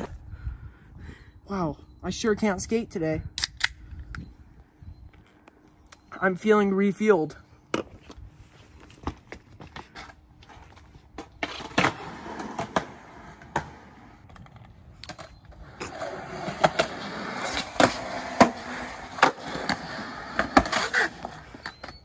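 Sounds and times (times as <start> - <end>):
skateboard wheels rolling: 7.8 - 22.0.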